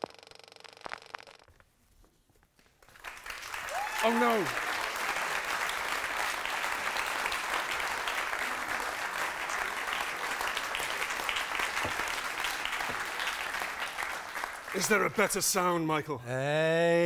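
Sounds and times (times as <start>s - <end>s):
audience applauding: 2.8s - 15.8s.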